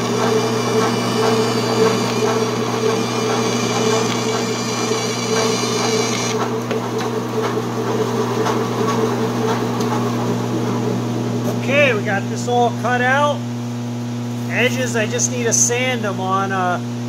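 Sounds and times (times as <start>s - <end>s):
saw blade whining through plastic: 0.0s - 7.1s
band saw motor humming: 0.0s - 12.2s.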